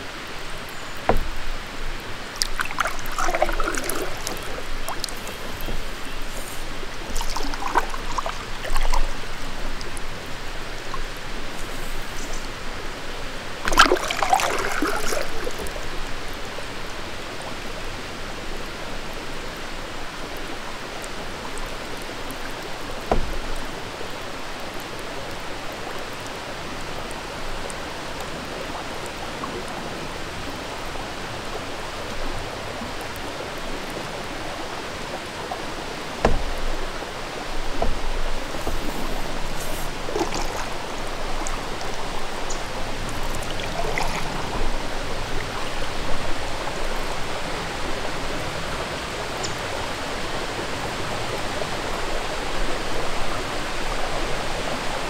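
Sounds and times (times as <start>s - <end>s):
paddle splashing through water: 0.0s - 12.7s, 13.4s - 17.6s, 20.6s - 54.6s
water trickling and rushing: 0.0s - 55.0s
soft low knocks: 36.2s - 37.0s.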